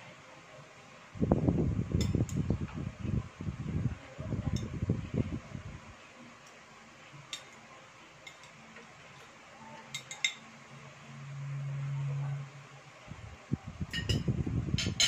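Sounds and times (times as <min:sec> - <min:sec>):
low steady hum: 0:00.0 - 0:15.0
cutlery clinking on ceramic plates: 0:08.2 - 0:08.6, 0:09.9 - 0:10.4.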